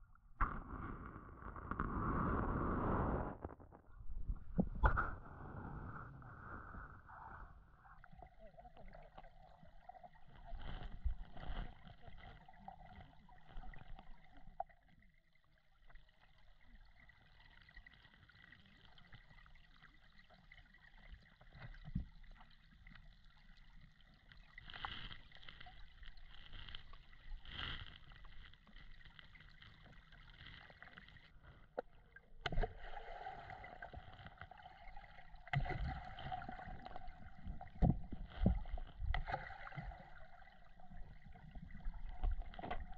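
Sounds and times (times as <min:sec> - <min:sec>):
muffled underwater current: 0:00.0 - 0:09.3, 0:24.6 - 0:42.9
dull knocks underwater: 0:00.4 - 0:02.5, 0:03.4 - 0:05.4, 0:35.5 - 0:40.0.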